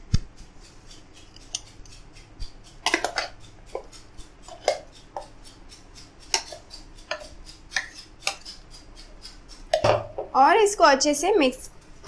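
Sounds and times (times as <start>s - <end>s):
metal spoon scraping steel jar: 0.9s - 9.8s.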